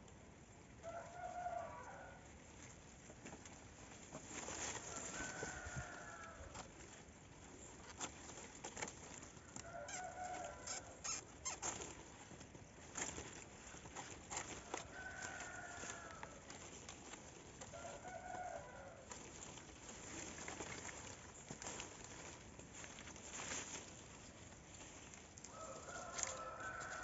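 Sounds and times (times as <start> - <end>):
rooster crowing: 0.8 - 2.2, 4.8 - 6.7, 9.6 - 11.0, 14.7 - 16.5, 17.7 - 19.1, 25.5 - 27.0
palm fronds rustling: 0.9 - 27.0.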